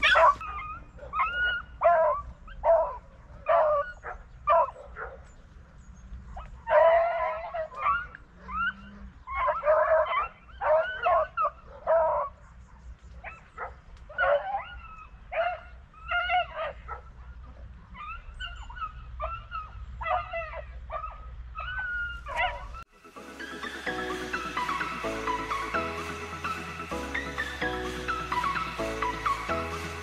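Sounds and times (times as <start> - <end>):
dogs baying and yelping: 0.0 - 5.4, 6.2 - 22.9.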